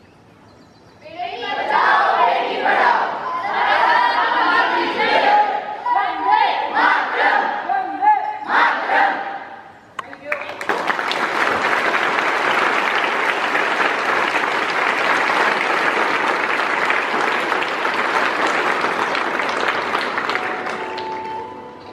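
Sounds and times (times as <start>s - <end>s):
audience applauding: 10.1s - 21.9s.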